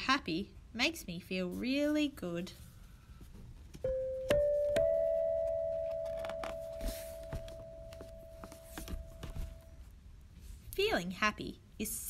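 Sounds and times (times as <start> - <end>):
rising chime notes: 3.9 - 9.6.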